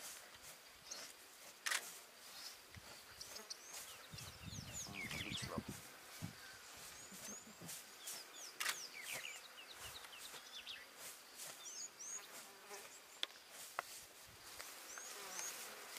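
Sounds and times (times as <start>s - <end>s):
insects buzzing: 0.0s - 15.9s
sharp clicks: 8.6s - 8.9s.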